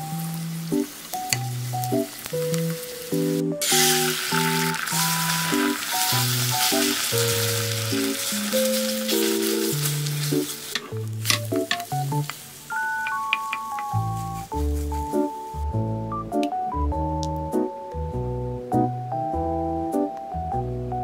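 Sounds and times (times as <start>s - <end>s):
egg sizzling in frying pan: 0.0s - 14.5s.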